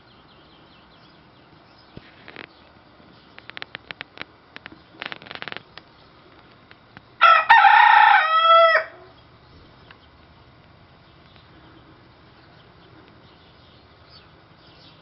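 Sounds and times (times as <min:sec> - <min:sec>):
rooster crowing: 0:07.2 - 0:09.2.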